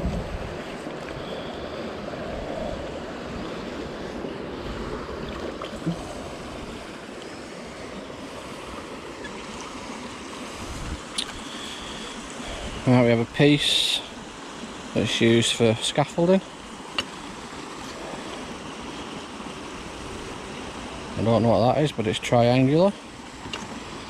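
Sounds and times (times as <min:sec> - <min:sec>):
wind buffeting microphone: 0:00.0 - 0:06.9, 0:10.5 - 0:11.5
flowing river water: 0:00.0 - 0:24.0.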